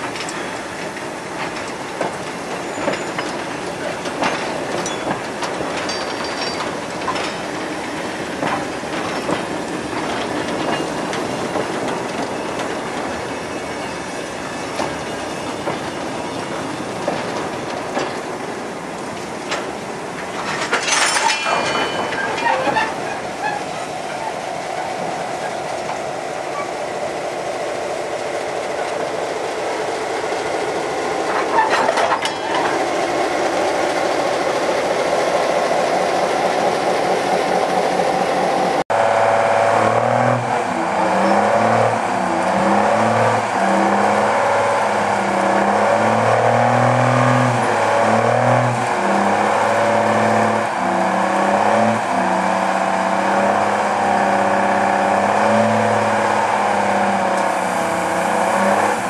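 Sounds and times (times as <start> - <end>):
diesel engine under load: 0.0 - 59.0
diesel locomotive rolling by: 0.0 - 59.0
locomotive squeal: 2.5 - 5.2, 10.2 - 17.2, 20.7 - 25.7, 26.4 - 27.0, 31.3 - 32.8, 40.8 - 44.8.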